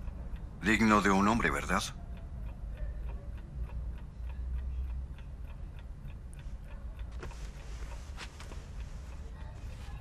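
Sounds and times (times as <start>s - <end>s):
faint steady ticking: 0.0s - 10.0s.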